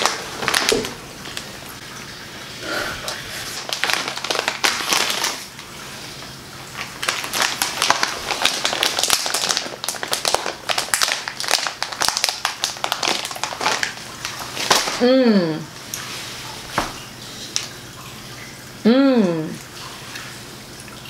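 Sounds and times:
plastic snack bag crinkling: 0:00.0 - 0:01.5, 0:03.0 - 0:05.8, 0:06.6 - 0:15.0.

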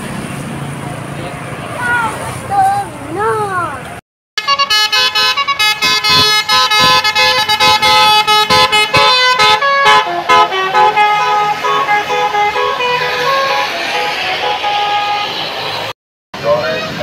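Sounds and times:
bus horn playing a melody: 0:04.4 - 0:15.9.

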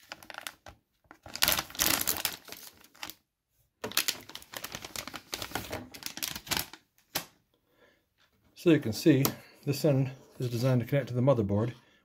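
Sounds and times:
plastic bag crinkling: 0:00.0 - 0:03.2, 0:03.8 - 0:06.8.

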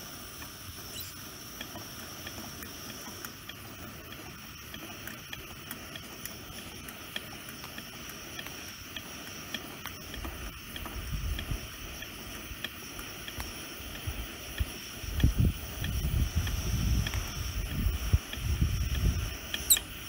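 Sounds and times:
stove pump plunger clicking: 0:00.2 - 0:20.0
wind buffeting microphone: 0:15.1 - 0:19.5.

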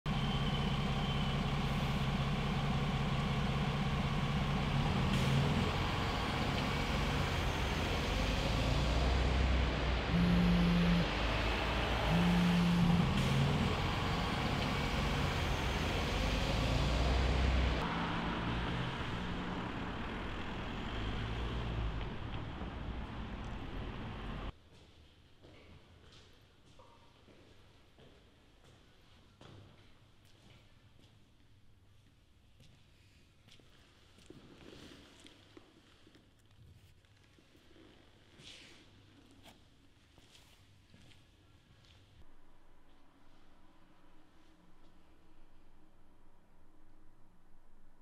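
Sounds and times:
bus engine humming: 0:00.1 - 0:24.5
street traffic noise: 0:00.1 - 0:24.6
short low tones: 0:08.3 - 0:15.7.

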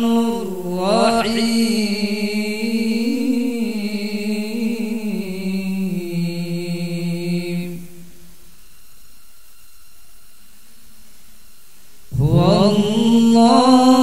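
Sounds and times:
man reciting melodically: 0:00.0 - 0:07.5, 0:12.1 - 0:14.0.

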